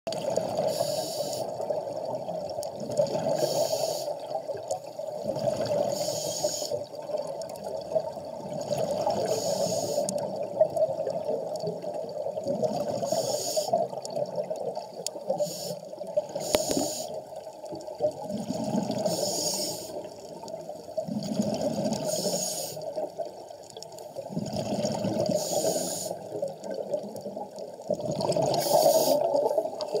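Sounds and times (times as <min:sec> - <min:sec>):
exhaled bubbles gurgling: 0:00.1 - 0:30.0
regulator inhale hiss: 0:00.6 - 0:01.6, 0:03.4 - 0:04.2, 0:05.9 - 0:06.8, 0:09.2 - 0:10.2, 0:13.0 - 0:13.8, 0:15.3 - 0:17.2, 0:19.0 - 0:20.1, 0:22.1 - 0:22.9, 0:25.3 - 0:26.3, 0:28.5 - 0:29.4.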